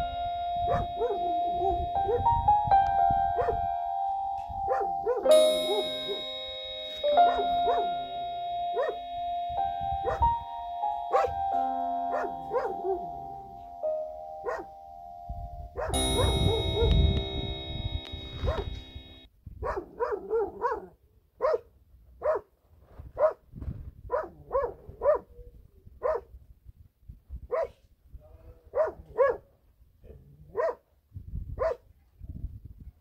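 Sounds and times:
dog barking: 0.7s - 2.3s, 3.4s - 3.6s, 4.7s - 6.2s, 7.3s - 7.9s, 8.8s - 9.0s, 10.0s - 10.3s, 11.1s - 11.4s, 12.1s - 13.1s, 14.4s - 14.7s, 15.8s - 17.0s, 18.5s - 18.7s, 19.6s - 22.5s, 23.2s - 23.4s, 24.1s - 25.3s, 26.0s - 26.3s, 27.5s - 27.8s, 28.7s - 29.5s, 30.5s - 30.8s, 31.6s - 31.9s.

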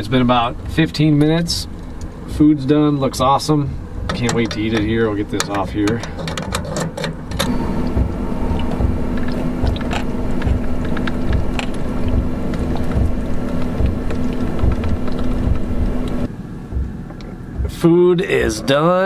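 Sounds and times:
steady hum and low rumble: 0.0s - 19.0s
small clinks and scrapes: 5.4s - 7.4s.

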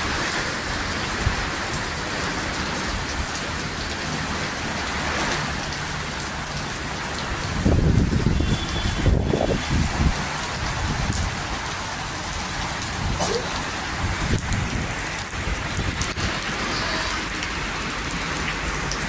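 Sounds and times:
heavy rain pouring: 0.0s - 19.0s
wind rumbling on microphone: 7.2s - 16.6s.

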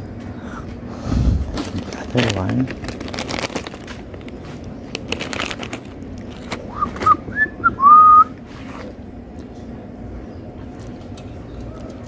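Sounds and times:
plastic bag crinkling: 1.4s - 7.1s
person whistling: 6.7s - 8.3s.

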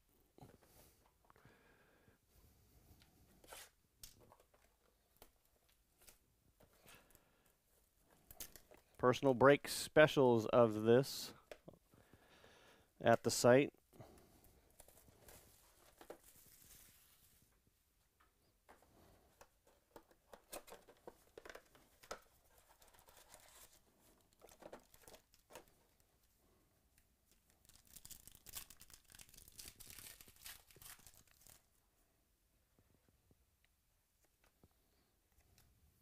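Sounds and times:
foil wrapper tearing open: 27.4s - 31.7s.

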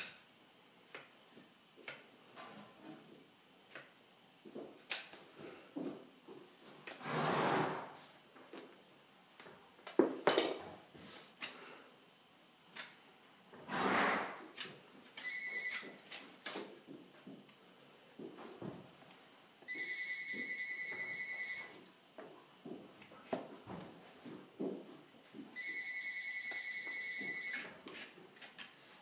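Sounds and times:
hand tools scraping horse hoof: 6.8s - 8.0s.

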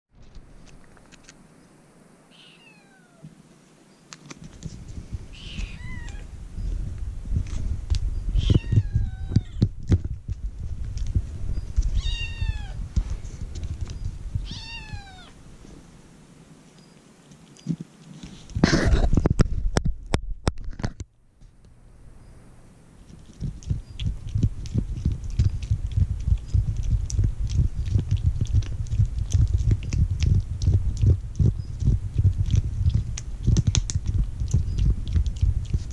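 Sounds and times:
kitten meowing: 2.3s - 3.3s, 5.3s - 6.3s, 8.4s - 9.6s, 11.9s - 12.8s, 14.4s - 15.4s
kitten licking wet clicks: 23.0s - 35.9s.

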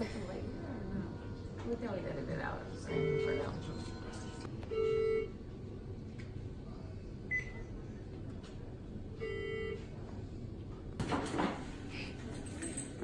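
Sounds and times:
low room hum: 0.0s - 13.0s
electronic beep from medical equipment: 7.3s - 7.7s.

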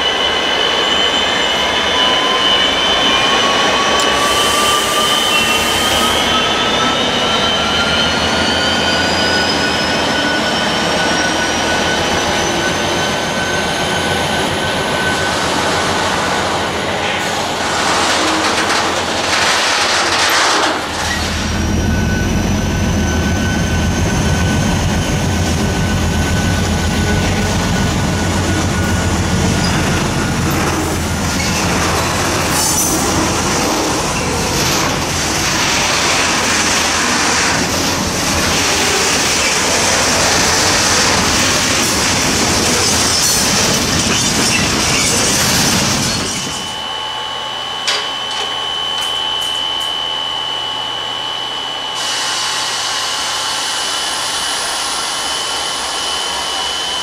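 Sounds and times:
high wheel squeal: 0.0s - 16.4s, 17.2s - 46.9s
diesel locomotive engines humming: 0.0s - 19.8s, 20.7s - 57.0s
train wheel rumble: 0.0s - 46.9s.

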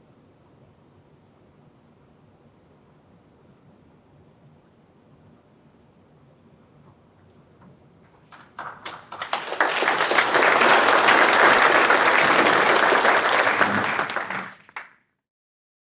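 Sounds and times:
audience applauding: 8.2s - 15.0s.

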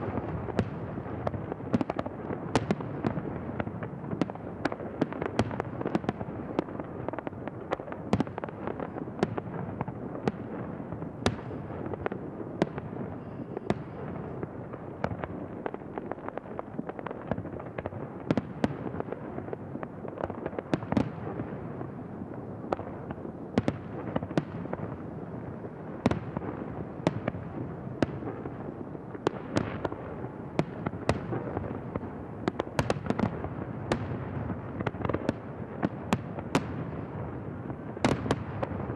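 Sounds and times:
fireworks rumble and crackle: 0.0s - 38.9s
fireworks sharp bangs: 26.0s - 38.9s.

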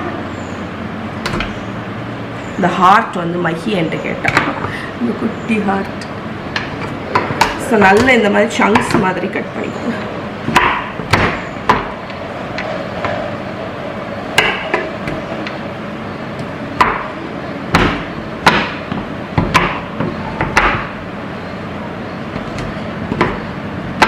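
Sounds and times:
knife chopping on wooden board: 10.5s - 12.0s, 16.8s - 17.1s, 17.7s - 21.0s.

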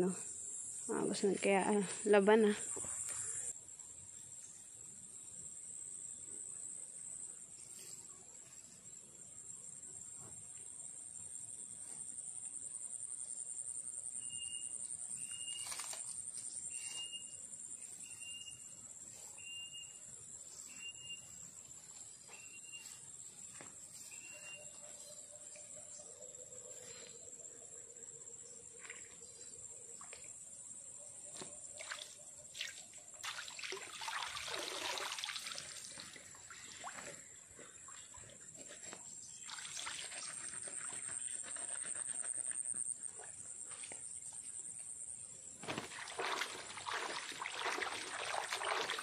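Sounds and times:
stream trickling: 31.7s - 38.6s, 39.2s - 43.5s, 45.7s - 49.0s
water splashing and pouring: 31.8s - 38.0s, 39.4s - 41.7s, 45.7s - 49.0s.

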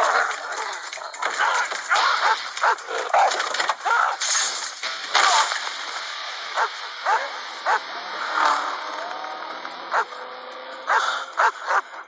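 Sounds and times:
dog barking: 2.1s - 3.4s, 6.6s - 7.8s, 9.9s - 10.2s, 10.9s - 11.9s.

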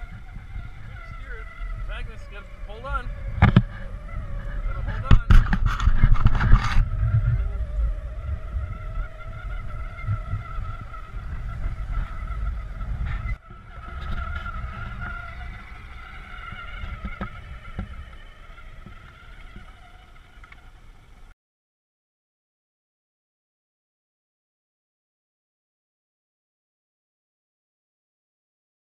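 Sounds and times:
low rumble: 0.0s - 19.7s
toy electric motor whining: 0.0s - 21.1s.

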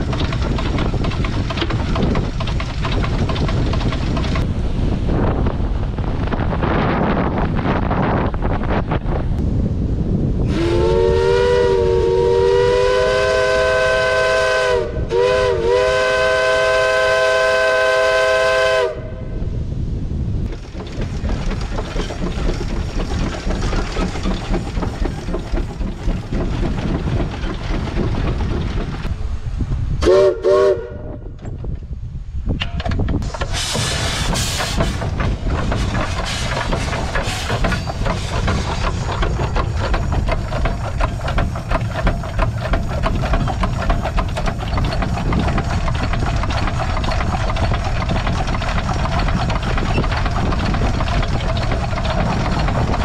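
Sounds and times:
steam whistle blast: 10.5s - 19.4s, 30.0s - 31.2s
loud hiss of steam: 33.2s - 44.7s.

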